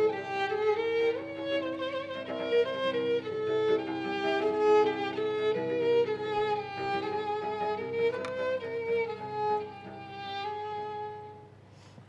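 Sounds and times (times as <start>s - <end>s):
violin-led chamber ensemble: 0.0s - 11.6s.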